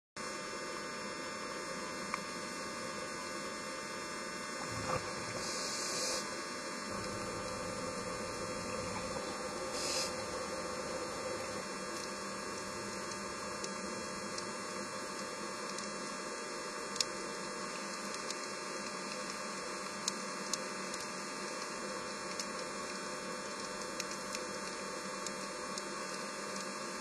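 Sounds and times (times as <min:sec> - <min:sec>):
steady multi-tone hum: 0:00.2 - 0:27.0
short hiss bursts: 0:04.8 - 0:06.2, 0:09.7 - 0:10.3.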